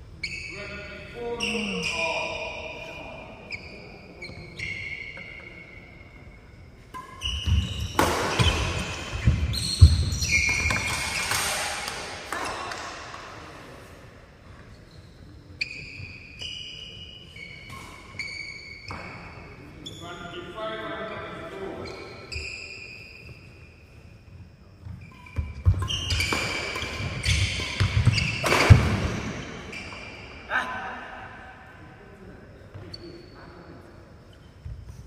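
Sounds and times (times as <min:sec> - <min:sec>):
shoes squeaking on floor: 0:00.0 - 0:02.5, 0:03.4 - 0:12.9, 0:14.4 - 0:30.4, 0:32.5 - 0:35.0
rackets hitting shuttlecock: 0:06.8 - 0:13.4, 0:25.4 - 0:29.6.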